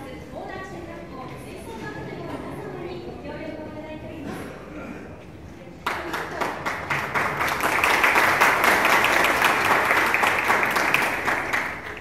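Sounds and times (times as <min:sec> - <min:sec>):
crowd applauding: 0:05.9 - 0:12.0.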